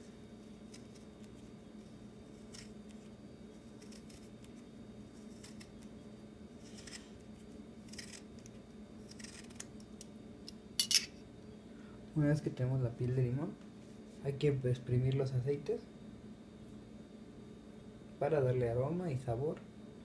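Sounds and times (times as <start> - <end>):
low steady hum: 0.0 - 20.0
blade rasping lemon rind: 3.6 - 4.5, 7.8 - 8.3, 9.0 - 9.7.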